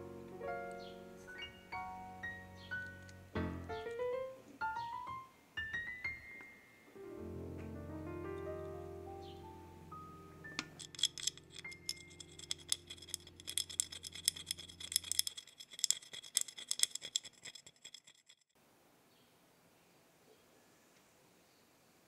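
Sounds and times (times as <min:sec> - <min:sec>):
rasping on metal grater: 0:10.9 - 0:18.4.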